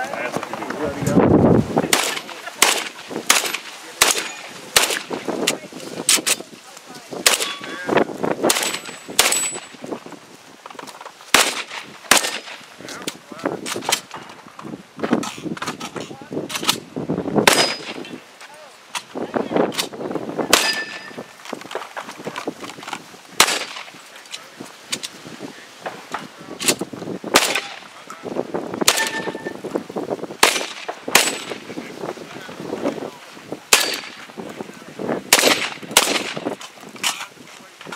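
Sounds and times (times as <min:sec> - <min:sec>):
rifle shots: 0:01.9 - 0:05.2, 0:07.2 - 0:07.7, 0:08.4 - 0:09.8, 0:11.3 - 0:12.6, 0:17.4 - 0:18.1, 0:20.5 - 0:21.2, 0:23.4 - 0:23.9, 0:26.6 - 0:27.9, 0:28.8 - 0:29.5, 0:30.4 - 0:31.7, 0:33.7 - 0:34.2, 0:35.3 - 0:36.6
steel target ringing: 0:20.6 - 0:21.2, 0:28.9 - 0:29.6.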